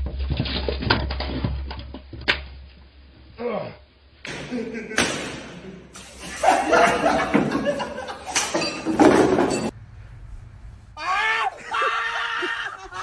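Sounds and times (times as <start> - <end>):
men laughing and talking: 4.3 - 9.0, 11.5 - 13.0.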